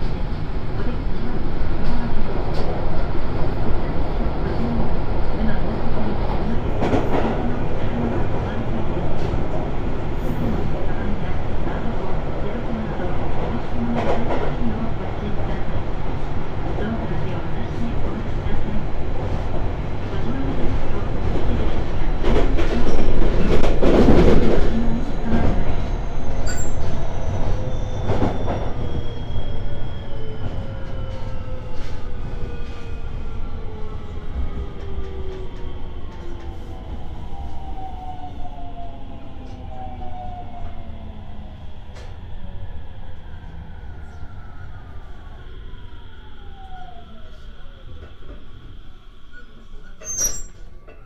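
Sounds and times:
rumbling wheel and rail noise: 0.0 - 51.0.

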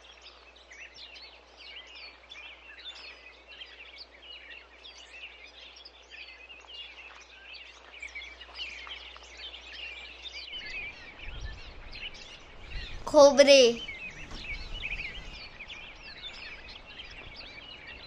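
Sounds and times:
small birds chirping: 10.6 - 18.0.

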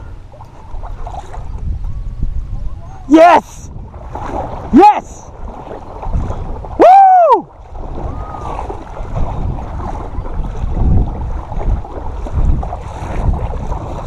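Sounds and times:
water splashing: 0.0 - 2.0, 3.0 - 14.0
wind buffeting microphone: 0.0 - 14.0
man shouting: 3.1 - 3.7, 4.7 - 5.3, 6.8 - 7.5.

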